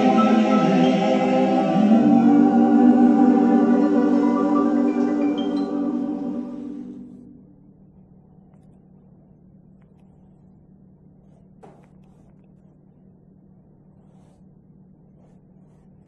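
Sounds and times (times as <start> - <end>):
music: 0.0 - 7.3
low steady hum: 0.0 - 16.0
paintbrush scratching on canvas: 9.8 - 13.1, 13.7 - 16.0.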